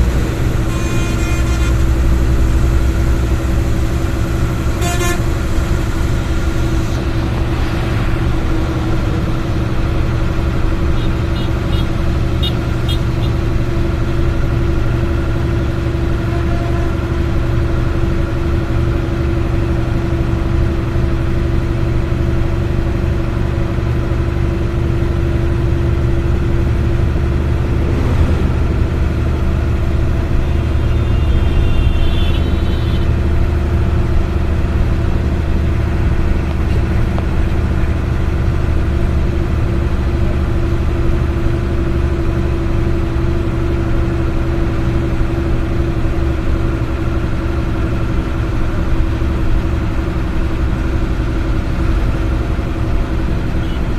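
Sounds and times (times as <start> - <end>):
road noise: 0.0 - 53.9
vehicle engine drone: 0.0 - 53.9
low hum: 26.0 - 31.0
steady mid-pitched tone: 26.9 - 30.4.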